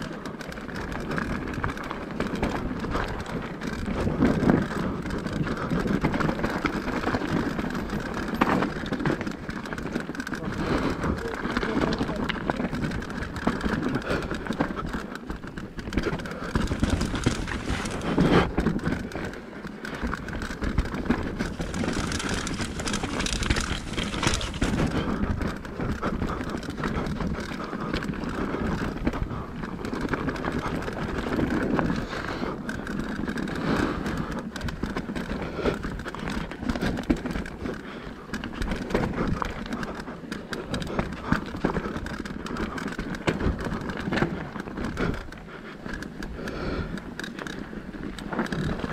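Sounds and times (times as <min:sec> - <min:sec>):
bike rattling over bumps: 0:00.0 - 0:48.9
bike tyres on dirt and rock: 0:00.0 - 0:48.9
wind noise on microphone: 0:20.5 - 0:32.5.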